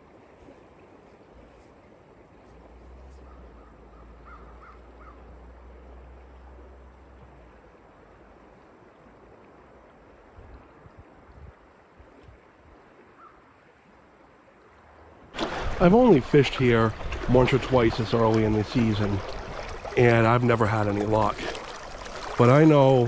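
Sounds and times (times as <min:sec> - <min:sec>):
bird calling: 0:03.2 - 0:05.3, 0:13.2 - 0:13.4
river water rushing: 0:11.0 - 0:23.0.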